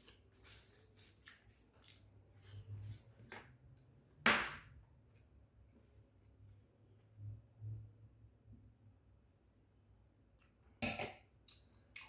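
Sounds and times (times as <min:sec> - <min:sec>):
aluminium foil crinkling: 0:00.0 - 0:03.1.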